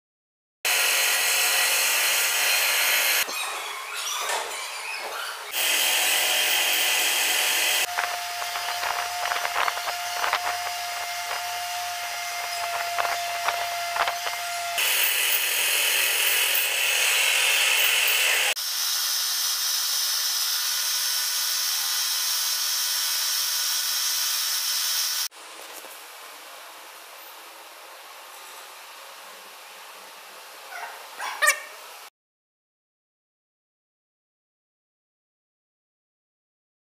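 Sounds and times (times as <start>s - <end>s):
steady whine: 7.0s - 15.1s
paint spray gun hissing: 18.6s - 25.3s.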